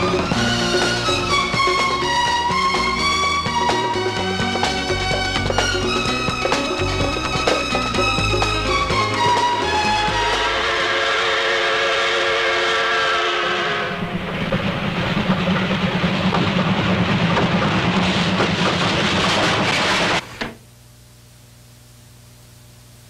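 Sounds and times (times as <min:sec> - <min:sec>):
steam locomotive chugging: 0:00.0 - 0:20.2
steam locomotive whistle: 0:09.2 - 0:14.2.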